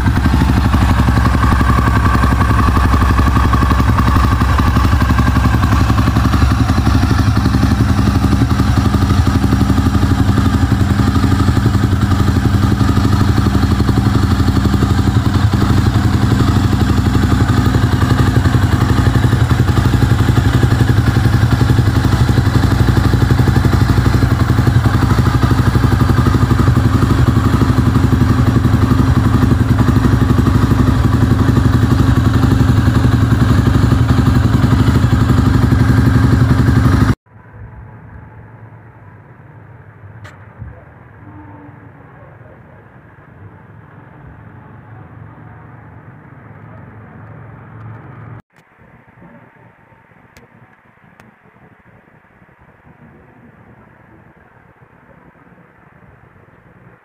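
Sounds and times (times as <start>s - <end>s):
motorcycle engine idling: 0.0s - 37.2s.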